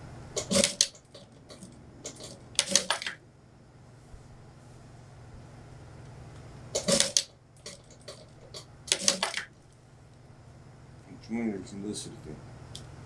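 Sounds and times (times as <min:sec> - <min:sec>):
sewing machine stitching: 0:00.4 - 0:01.0, 0:06.8 - 0:08.2.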